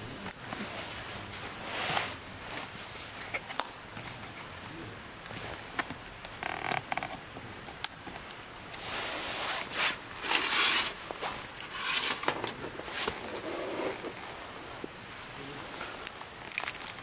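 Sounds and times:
paper packaging rustling: 9.6 - 14.4.

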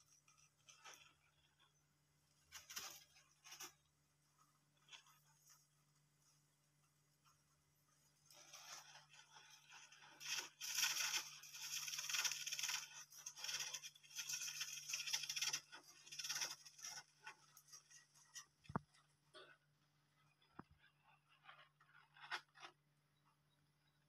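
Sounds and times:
hamsters scrabbling in bedding: 0.0 - 19.2.

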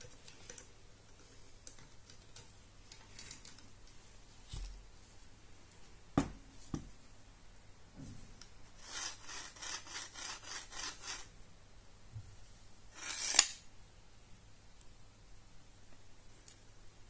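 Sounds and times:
sharp scrape: 8.8 - 11.3, 12.9 - 13.6.

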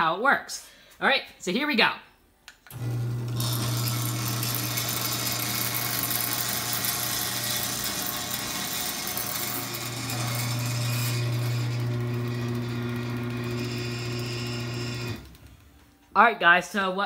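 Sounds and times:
garage door opener motor hum: 2.7 - 15.9.

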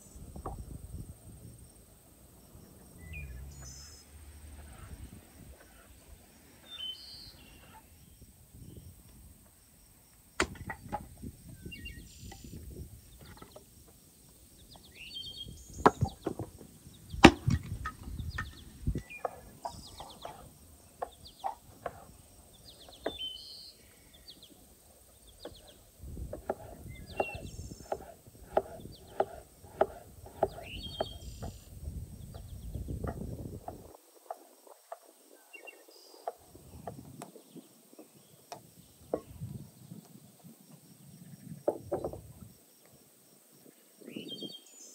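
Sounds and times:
birds chirping: 1.8 - 9.0, 10.6 - 33.8, 34.7 - 42.4
knife chopping on wooden board: 26.3 - 31.5.

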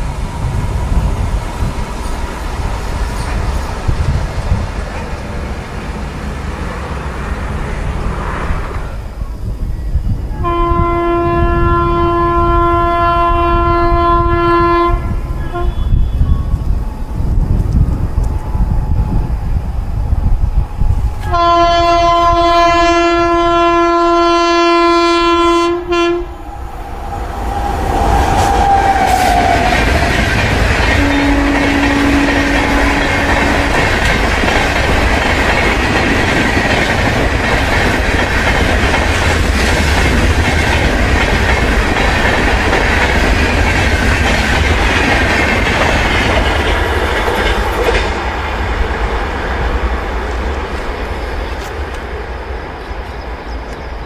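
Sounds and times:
train coaches rumbling: 0.0 - 54.0
wheels clacking over rail joints: 1.4 - 8.8, 28.1 - 53.8
locomotive horn: 10.3 - 16.6, 21.2 - 26.4, 30.9 - 34.0.

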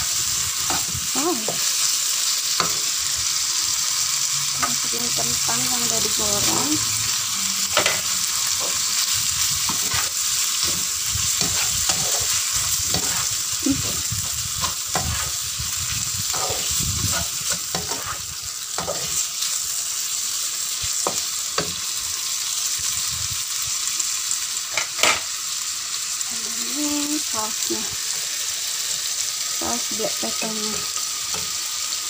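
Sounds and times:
beef and potatoes sizzling in a wok: 0.0 - 32.0
spatula clicking and scraping a pan: 0.6 - 1.9, 2.5 - 3.0, 7.7 - 19.5, 20.9 - 21.8.

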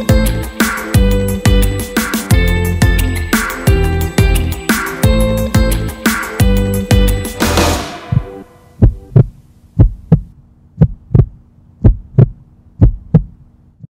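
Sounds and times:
music: 0.0 - 9.2
heartbeat thumps: 8.0 - 13.4.

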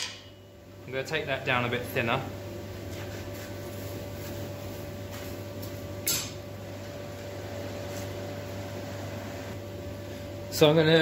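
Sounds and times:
workshop machinery hum: 0.0 - 11.0.

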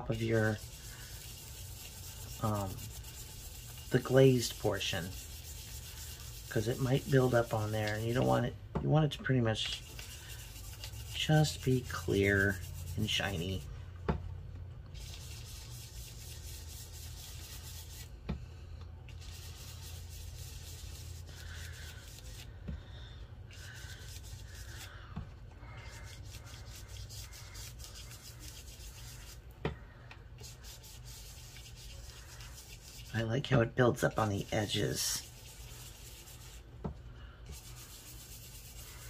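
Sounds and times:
rubbing strokes on paper: 0.0 - 8.5, 9.7 - 13.7, 14.9 - 18.2, 19.1 - 22.6, 23.5 - 25.0, 25.6 - 29.5, 30.4 - 33.4, 34.0 - 36.7, 37.4 - 39.0.

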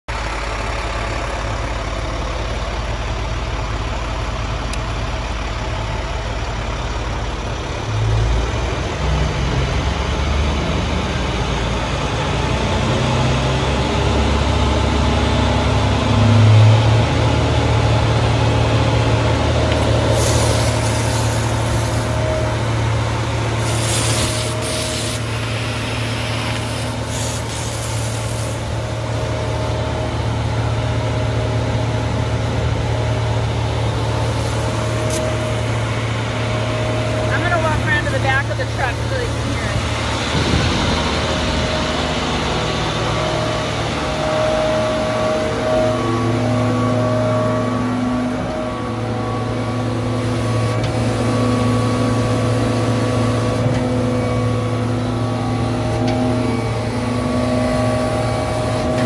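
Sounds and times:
truck engine and water pump running: 0.1 - 59.0
water jet hissing on concrete: 20.1 - 22.1, 23.6 - 28.8.

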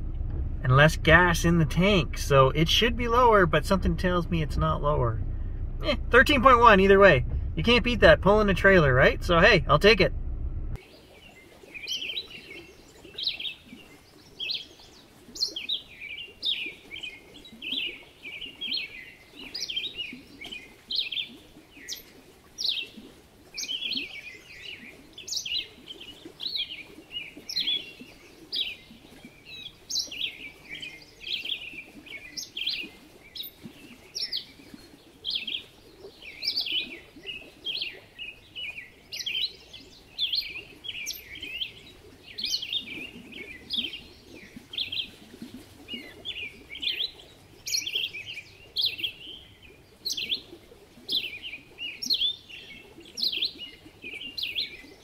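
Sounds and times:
small birds chirping: 23.6 - 55.0.

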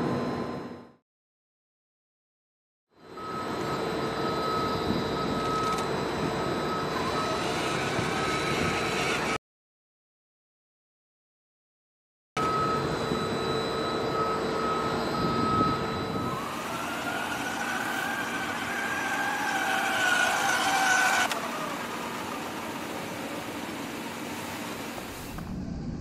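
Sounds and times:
electric motor whining: 6.4 - 9.4, 14.8 - 25.6.

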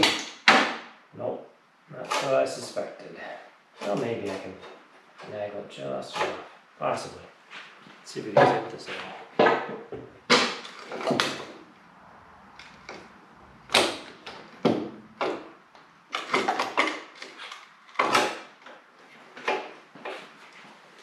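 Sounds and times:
knocks and clunks of tools on metal: 13.7 - 18.8.

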